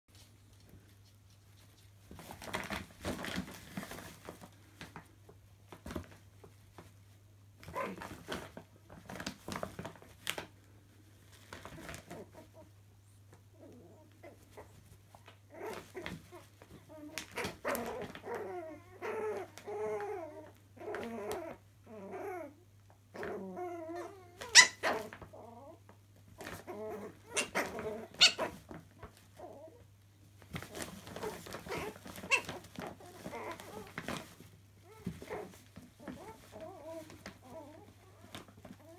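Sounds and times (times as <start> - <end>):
puppy growls and whines: 7.6 - 10.5, 11.4 - 38.9
puppy yaps: 23.2 - 25.6, 26.4 - 28.6, 30.7 - 38.9.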